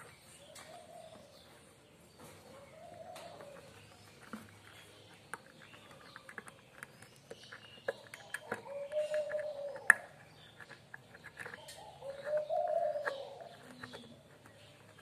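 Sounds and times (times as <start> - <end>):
pigeon cooing: 2.6 - 3.8, 8.3 - 10.2, 11.5 - 14.4.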